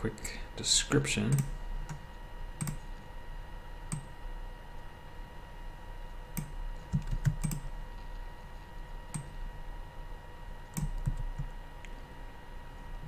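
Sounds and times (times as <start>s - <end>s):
faint electrical hum: 0.0s - 13.0s
keyboard keystrokes: 6.4s - 7.7s, 10.7s - 11.5s.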